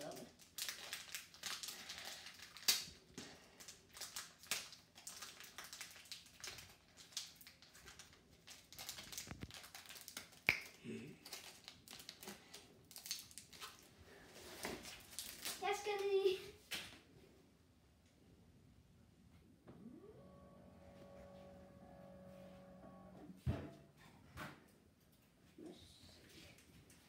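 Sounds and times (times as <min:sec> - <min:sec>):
foil wrapper crinkling: 0:00.0 - 0:16.0.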